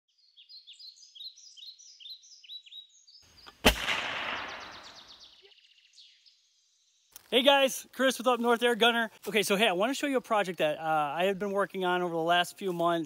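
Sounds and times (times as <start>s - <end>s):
birds chirping: 0.1s - 13.0s
gunshot with echo: 3.6s - 5.2s.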